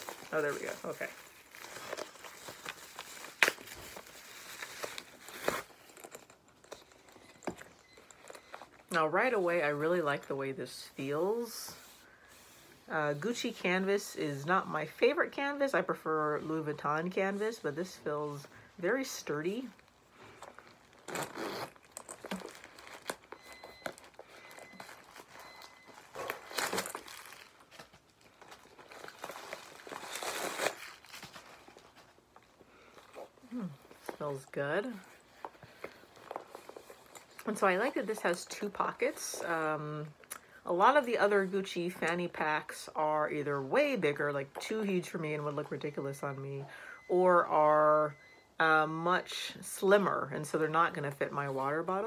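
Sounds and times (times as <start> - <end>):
paper wrapping crinkling: 0.0 - 8.8, 19.6 - 39.0
handling of a bag: 0.0 - 8.9, 19.6 - 39.1.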